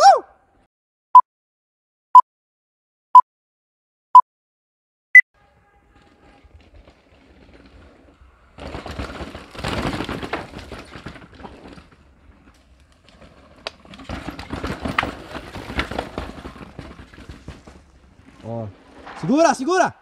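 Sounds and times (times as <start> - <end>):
bike tyres on dirt: 5.4 - 20.0
bike chain rattling: 6.0 - 19.0.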